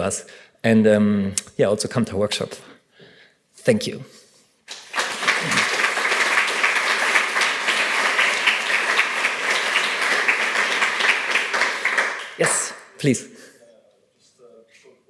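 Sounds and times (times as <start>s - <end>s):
audience applauding: 4.7s - 12.8s.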